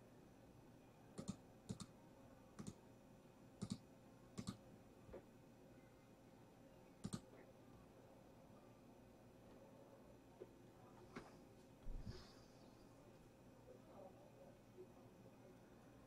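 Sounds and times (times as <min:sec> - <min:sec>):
computer keys and mouse clicks: 0:01.2 - 0:02.0, 0:02.6 - 0:02.8, 0:03.6 - 0:04.6, 0:07.0 - 0:07.5.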